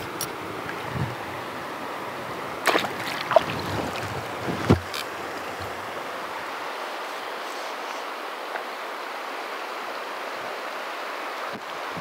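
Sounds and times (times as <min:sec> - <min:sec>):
river rushing: 0:00.0 - 0:12.0
splashes and knocks in water: 0:02.6 - 0:05.8.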